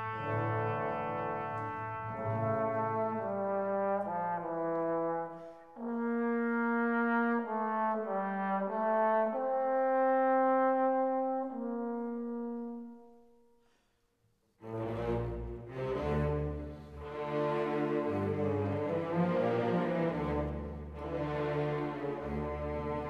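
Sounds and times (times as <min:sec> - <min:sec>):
brass instruments playing held notes: 0:00.0 - 0:12.9.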